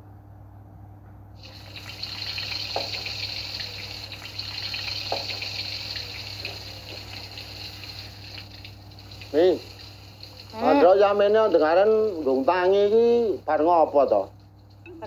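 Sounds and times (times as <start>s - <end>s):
rain hissing: 1.4s - 15.0s.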